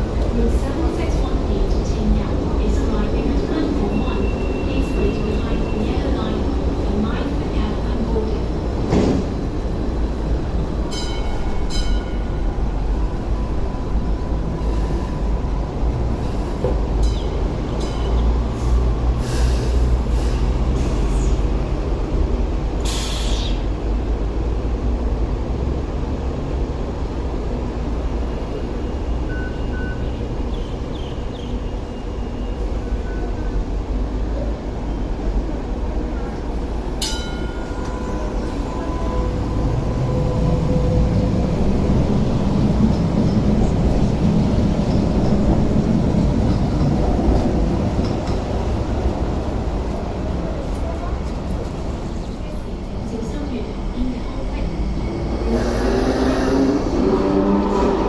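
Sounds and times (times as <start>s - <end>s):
train equipment rumble: 0.0s - 58.0s
short air hisses: 22.8s - 23.6s.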